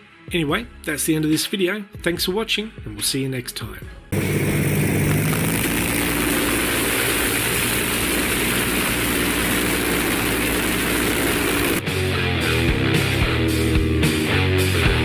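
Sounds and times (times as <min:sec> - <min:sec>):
motorcycle engine running: 0:04.2 - 0:11.8.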